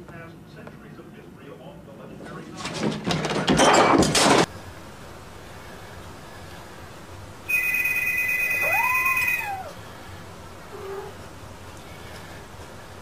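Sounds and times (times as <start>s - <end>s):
high electronic tone: 7.5s - 9.7s
cat meowing: 8.4s - 9.8s, 10.7s - 11.2s.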